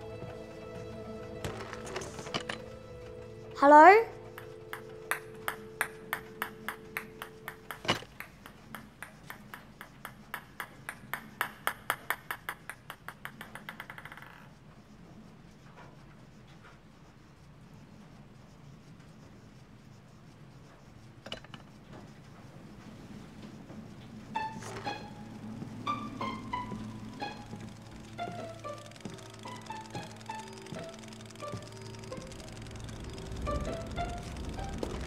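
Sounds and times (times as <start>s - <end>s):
steady low tone: 0.0s - 11.9s, 22.6s - 35.0s
ping-pong ball bouncing on wood: 4.2s - 14.5s, 24.6s - 32.3s.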